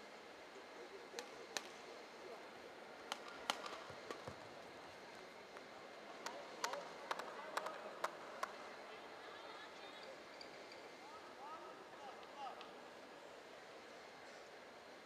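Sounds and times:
low arena murmur: 0:00.0 - 0:15.0
racket striking shuttlecock: 0:03.1 - 0:04.4.

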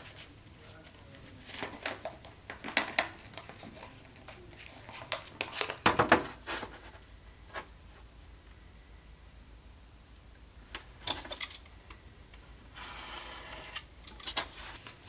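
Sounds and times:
paper rustling and crinkling: 0:00.0 - 0:07.7, 0:13.6 - 0:15.0.

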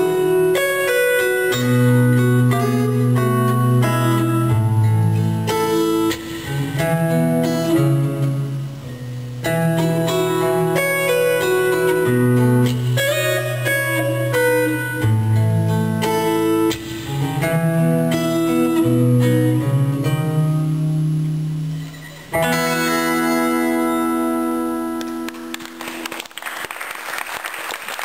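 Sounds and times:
acoustic guitar playing: 0:00.0 - 0:26.4
applause: 0:25.0 - 0:28.0.

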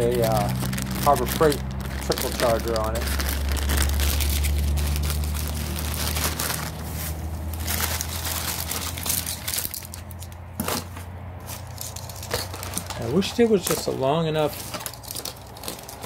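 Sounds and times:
low rumble: 0:00.0 - 0:09.9
footsteps through dry leaves: 0:00.0 - 0:10.2, 0:11.4 - 0:16.0
plastic bag crinkling: 0:00.0 - 0:10.8, 0:11.4 - 0:16.0.

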